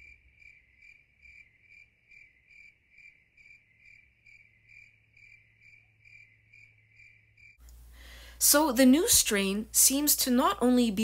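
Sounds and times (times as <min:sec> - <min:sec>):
cricket chirping: 0:00.0 - 0:07.6.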